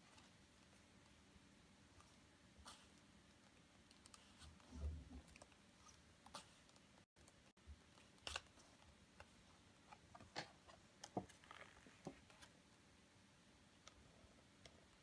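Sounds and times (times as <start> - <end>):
book pages rustling and turning: 2.0 - 12.6.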